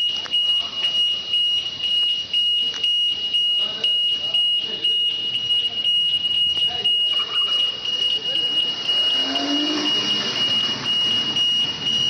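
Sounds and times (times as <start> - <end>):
shrill electronic alarm: 0.0 - 12.0
faint voices: 0.2 - 12.0.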